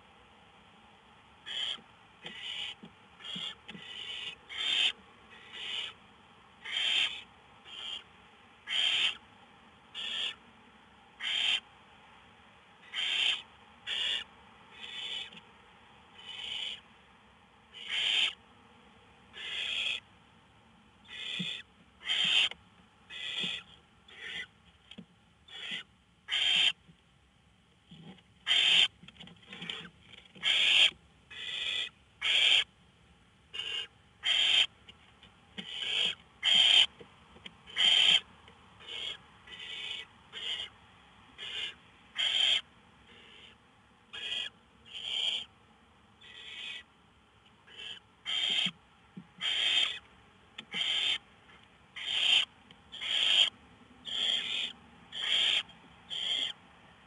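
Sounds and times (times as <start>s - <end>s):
owl chicks hissing calls: 1.4s - 6.0s, 6.6s - 9.2s, 9.9s - 10.4s, 11.2s - 11.7s, 12.8s - 15.4s, 16.2s - 16.8s, 17.7s - 18.4s, 19.3s - 20.0s, 21.0s - 24.6s, 25.5s - 26.8s, 28.4s - 28.9s, 29.7s - 32.7s, 33.5s - 34.7s, 35.6s - 36.9s, 37.7s - 40.7s, 41.4s - 45.5s, 46.2s - 46.9s, 47.7s - 48.8s, 49.4s - 50.0s, 50.6s - 51.2s, 52.0s - 56.6s.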